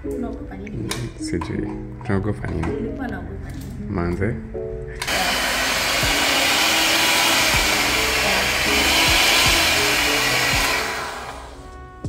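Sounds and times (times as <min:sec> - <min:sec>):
electric hand mixer whirring: 0:05.0 - 0:11.7.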